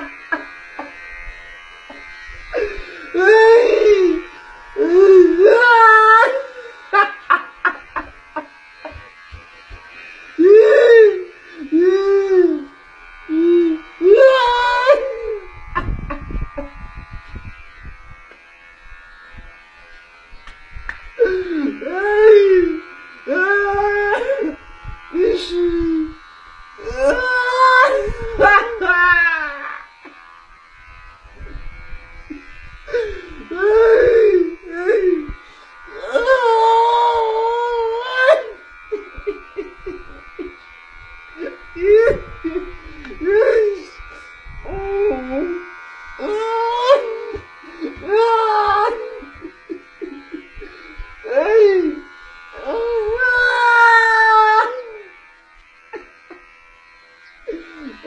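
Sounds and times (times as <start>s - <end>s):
man wailing: 3.1s - 6.5s, 10.4s - 12.7s, 13.3s - 15.5s, 21.2s - 24.6s, 26.8s - 29.9s, 33.4s - 35.4s, 36.0s - 38.6s, 41.8s - 44.0s, 46.2s - 50.4s, 51.3s - 52.0s
voice calling in sliding tones: 25.2s - 26.2s.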